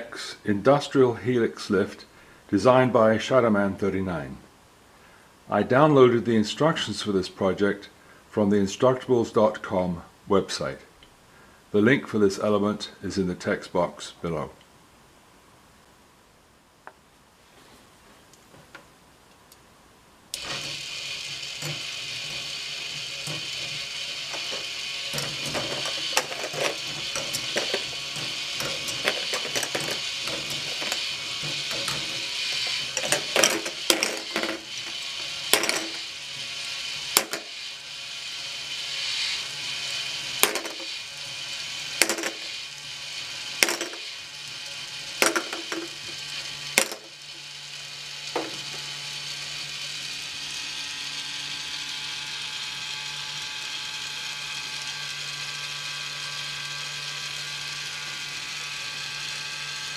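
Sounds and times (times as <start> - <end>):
toy motor and gears whirring: 20.4 - 59.9
plastic balls clacking: 24.3 - 36.1, 37.1 - 37.6, 40.4 - 41.0, 42.0 - 42.5, 43.6 - 44.1, 45.2 - 46.2.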